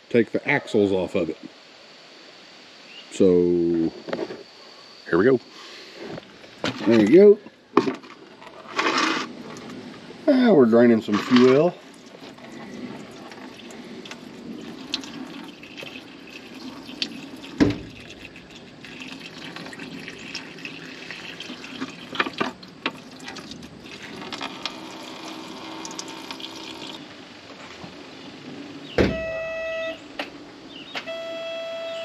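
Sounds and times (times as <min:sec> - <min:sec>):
fuel pouring stream: 0:08.7 - 0:27.1.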